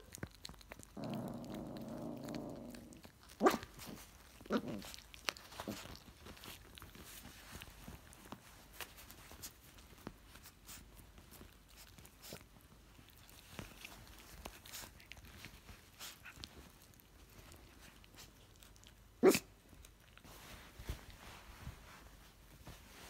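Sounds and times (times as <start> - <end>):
clicks and rustling on blanket: 0.0 - 23.0.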